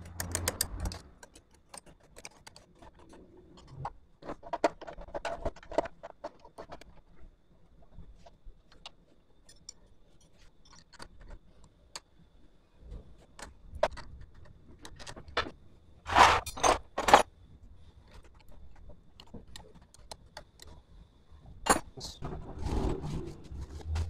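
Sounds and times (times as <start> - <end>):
metal parts and spanner clinking: 0.0 - 7.1, 8.7 - 12.0, 13.4 - 17.3, 21.5 - 22.4.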